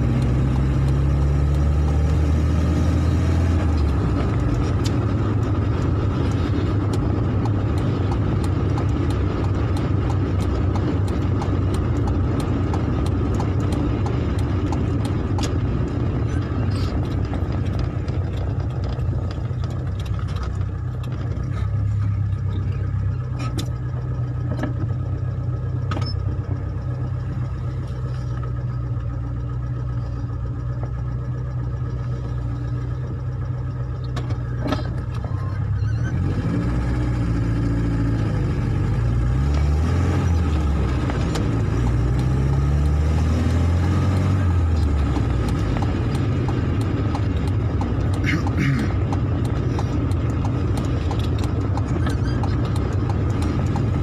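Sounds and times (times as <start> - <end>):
car engine and tyres hum: 0.0 - 54.0.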